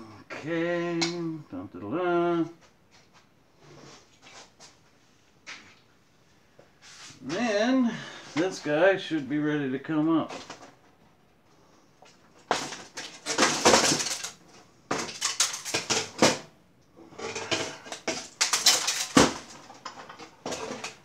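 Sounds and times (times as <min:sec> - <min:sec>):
metal clattering and scraping: 0:17.1 - 0:21.0.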